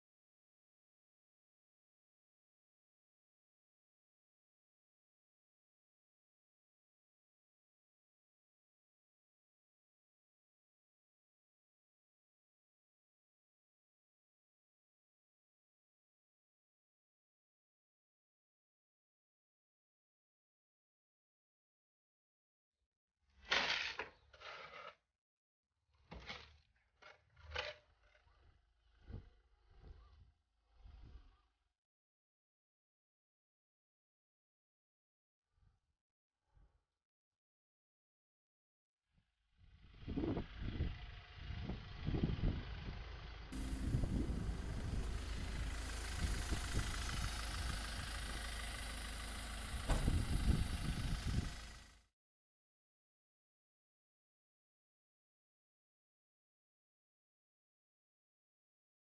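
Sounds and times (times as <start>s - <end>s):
tool scraping through gravel: 23.6s - 25.0s
engine running with low rumble: 27.6s - 31.6s, 39.6s - 52.1s.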